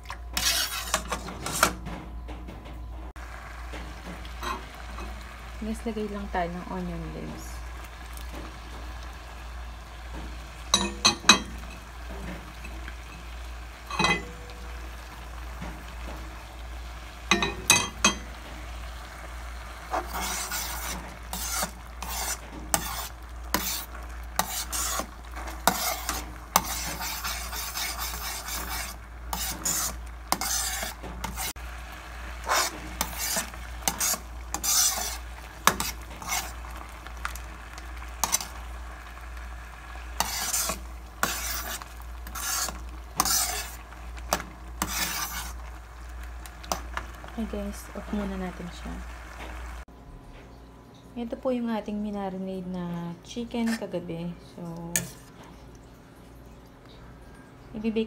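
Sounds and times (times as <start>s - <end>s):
metal ladle scraping pot: 0.1s - 1.9s, 13.9s - 14.4s, 19.9s - 31.6s, 32.4s - 37.5s, 38.1s - 38.7s, 40.1s - 45.7s, 54.9s - 55.4s
sauce sizzling faintly: 3.1s - 49.9s, 51.1s - 58.0s
ladle clinking against pot: 13.9s - 14.4s, 17.3s - 18.2s.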